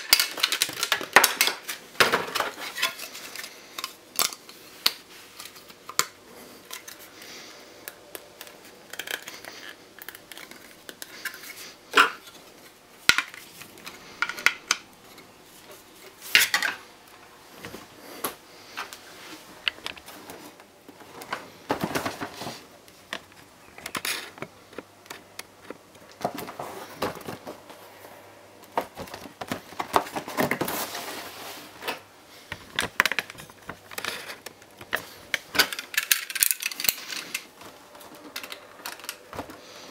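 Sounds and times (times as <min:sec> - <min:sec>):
packaging clicks and knocks: 0:00.0 - 0:07.0
rustling and scraping packaging: 0:00.0 - 0:16.9, 0:17.5 - 0:39.9.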